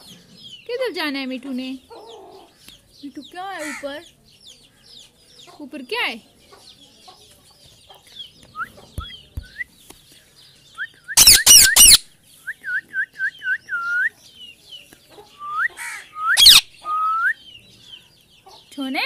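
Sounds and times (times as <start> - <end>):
parakeet whistled chirps: 10.8 - 12.0, 15.5 - 17.4
parakeet harsh screeches: 11.2 - 12.0, 15.8 - 16.6.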